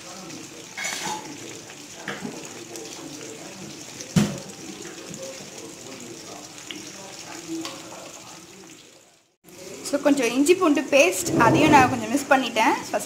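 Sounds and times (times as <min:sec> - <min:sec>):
onions sizzling in oil: 0:00.0 - 0:13.0
ladle scraping pan: 0:11.0 - 0:12.3.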